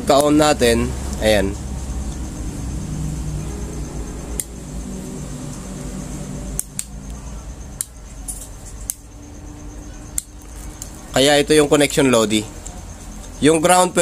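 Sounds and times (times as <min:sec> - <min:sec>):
small sharp clicks: 0:04.3 - 0:04.6, 0:06.5 - 0:07.2, 0:07.8 - 0:09.1, 0:10.1 - 0:11.0.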